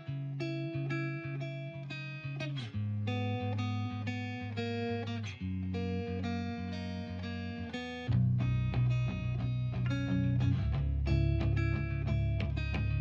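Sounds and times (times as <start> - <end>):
plucked guitar: 0.0 - 13.0
bass line: 8.1 - 13.0.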